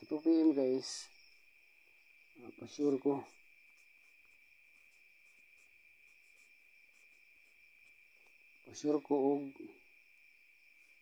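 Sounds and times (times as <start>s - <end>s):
faint insect trill: 0.0s - 11.0s
marker scratching on paper: 2.8s - 8.3s.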